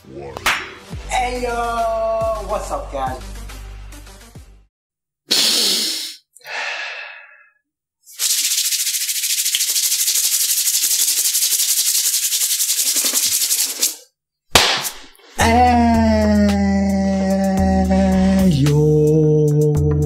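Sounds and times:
fast-pulsing rattly hiss: 8.1s - 14.0s.

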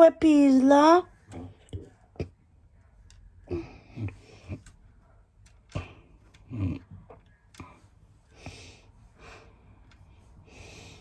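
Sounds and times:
heavy breathing: 7.6s - 11.0s.

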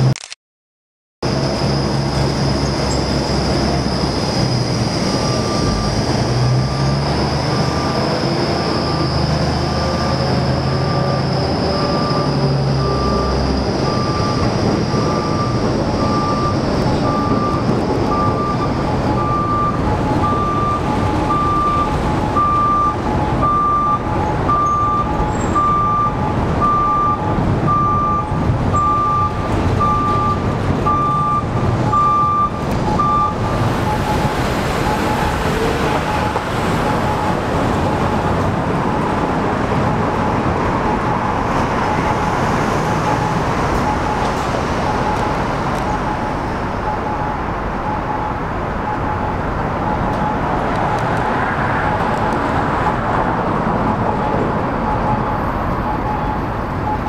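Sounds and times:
diesel locomotive engine running: 1.2s - 57.0s
back-up alarm beeping: 5.2s - 5.9s, 7.7s - 37.4s, 40.1s - 51.1s, 54.8s - 57.0s.

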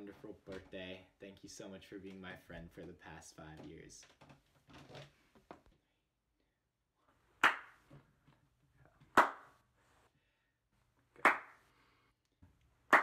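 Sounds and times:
hand claps: 7.4s - 7.8s, 9.2s - 9.5s, 11.2s - 11.6s.

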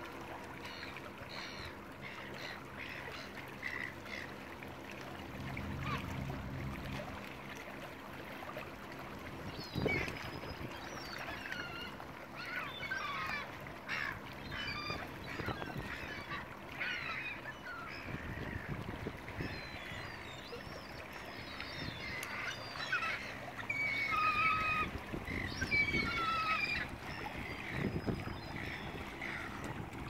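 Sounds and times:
gulls squawking: 5.4s - 6.9s, 10.9s - 18.8s, 19.4s - 30.0s.

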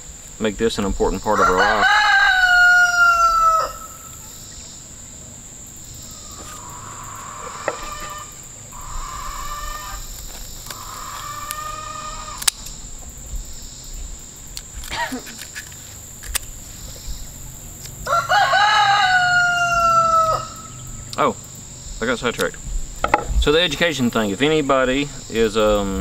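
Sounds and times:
distant rooster crowing: 1.3s - 4.4s, 6.0s - 12.5s, 18.0s - 21.1s
rooster crowing: 1.3s - 4.4s, 6.1s - 10.1s, 10.7s - 12.5s, 18.0s - 21.0s.

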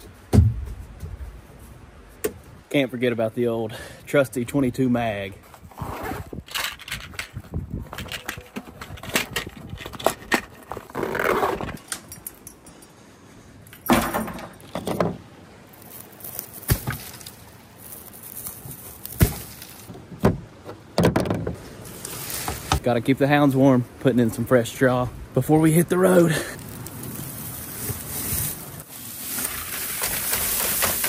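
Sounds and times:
clicks and knocks of small items: 6.5s - 10.9s
zipper pulled: 10.9s - 11.8s.

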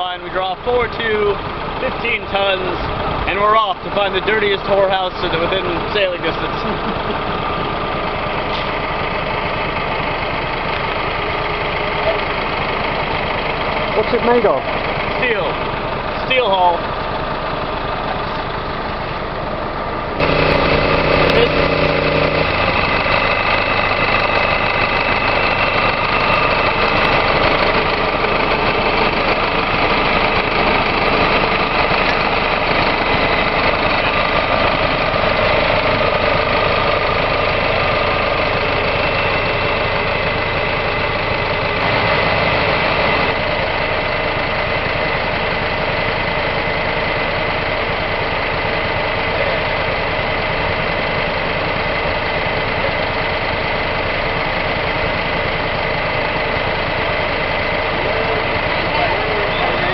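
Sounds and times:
engine running steadily: 0.0s - 59.9s
high whine: 20.0s - 44.2s.

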